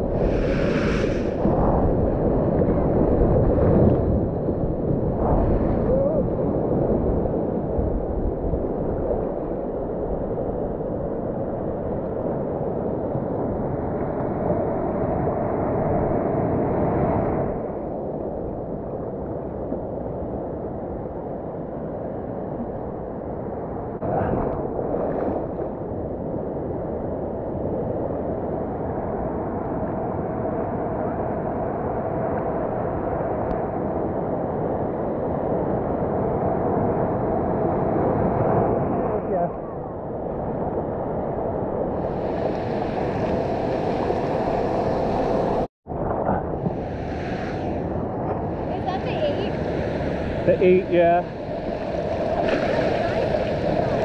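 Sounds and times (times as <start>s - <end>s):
muffled rumble of breaking surf: 0.0s - 54.0s
water splashes: 48.5s - 54.0s
water sloshing: 51.4s - 54.0s.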